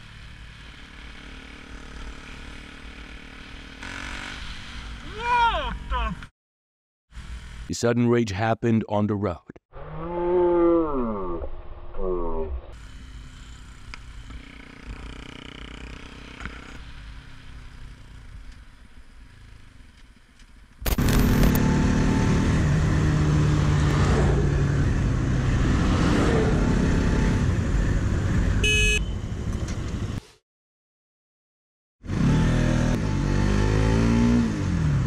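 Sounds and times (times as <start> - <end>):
motorcycle engine running: 0.0 - 5.0, 12.8 - 29.5
road noise: 0.0 - 6.3, 7.1 - 7.9, 12.7 - 30.4, 32.0 - 35.0
motorcycle horn toot: 28.6 - 29.3.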